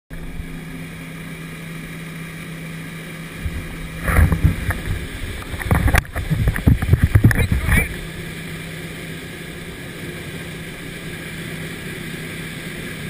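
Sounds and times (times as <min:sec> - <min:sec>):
churning wake: 0:00.1 - 0:13.0
motorboat engine running: 0:00.1 - 0:13.0
buffeting on microphone: 0:03.4 - 0:08.1.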